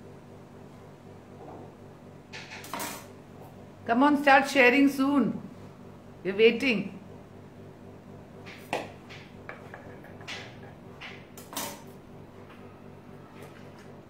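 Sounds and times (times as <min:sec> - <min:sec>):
utensils knocking and clinking: 0:02.3 - 0:03.1, 0:08.5 - 0:11.9.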